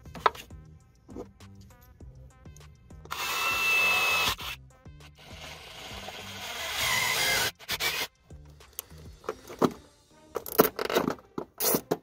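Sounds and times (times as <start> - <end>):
faint background music: 0.0 - 12.0
power drill whining: 3.1 - 4.6, 5.2 - 8.1.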